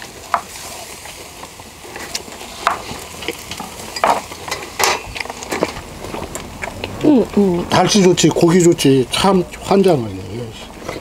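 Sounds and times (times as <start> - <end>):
beef sizzling on a grill: 0.0 - 11.0
sharp pops and clicks: 1.4 - 7.1.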